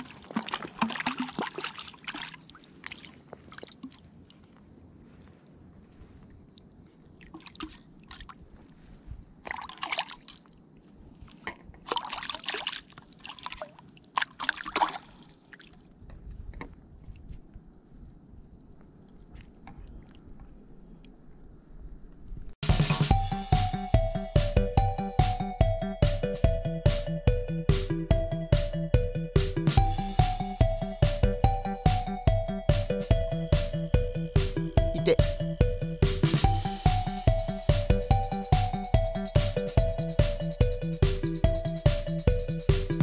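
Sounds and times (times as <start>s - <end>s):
water dripping: 0.0s - 4.4s, 7.2s - 8.4s
water splashing and sloshing: 0.0s - 5.2s, 6.3s - 16.0s.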